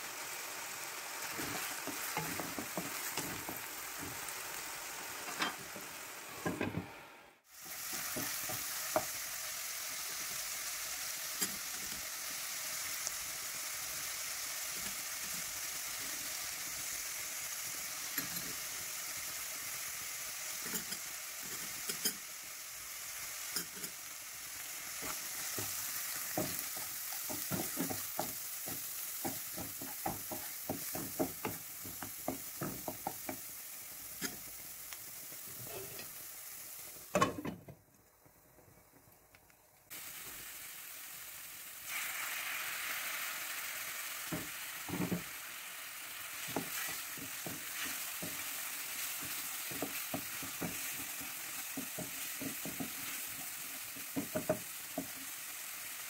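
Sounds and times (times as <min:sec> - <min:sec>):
sizzling in hot oil: 0:00.0 - 0:06.6, 0:07.4 - 0:37.5, 0:38.2 - 0:56.0
wooden spatula scraping: 0:01.3 - 0:04.2
water poured into hot pan: 0:39.9 - 0:54.8.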